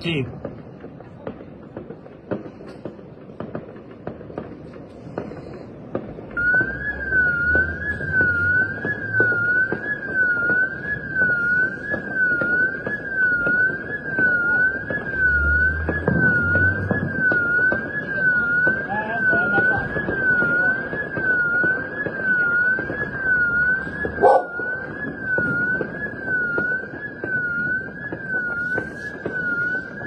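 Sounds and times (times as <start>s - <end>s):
firecrackers popping: 0.0s - 30.0s
electronic siren wailing: 6.4s - 30.0s.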